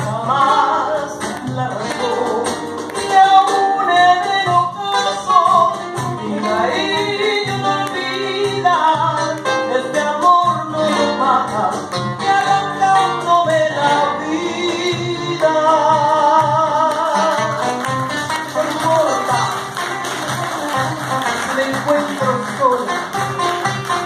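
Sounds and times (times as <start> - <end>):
woman singing into a microphone: 0.0 - 17.6
acoustic guitar: 0.0 - 24.0.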